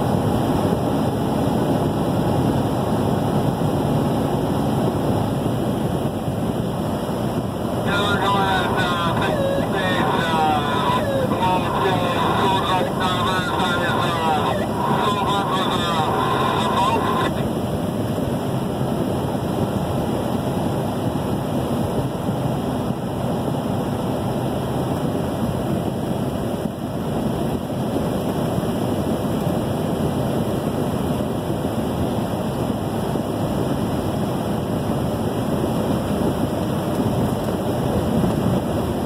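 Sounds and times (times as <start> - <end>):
road and wind noise inside vehicle: 0.0 - 39.0.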